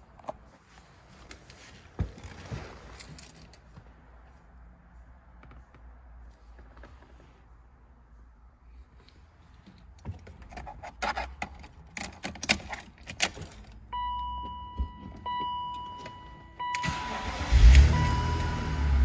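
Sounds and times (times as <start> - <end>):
car keys jangling: 9.7 - 18.6
car engine starting and running: 11.6 - 19.0.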